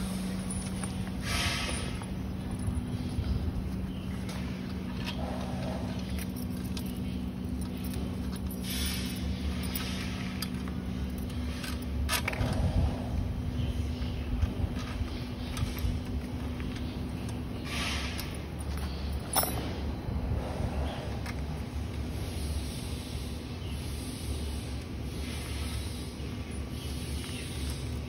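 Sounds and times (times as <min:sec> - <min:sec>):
rustling scrapes: 0:00.0 - 0:07.0
steady low hum: 0:00.0 - 0:28.0.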